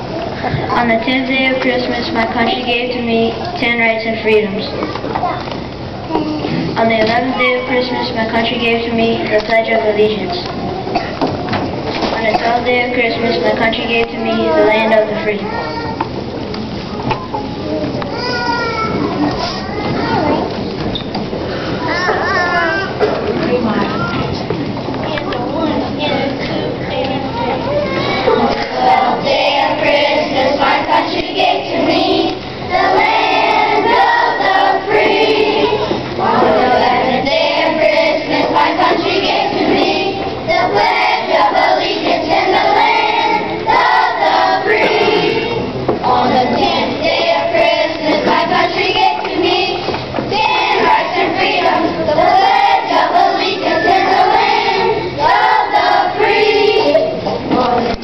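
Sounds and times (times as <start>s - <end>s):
children's choir singing: 0.0s - 4.8s, 6.5s - 15.5s, 26.1s - 58.0s.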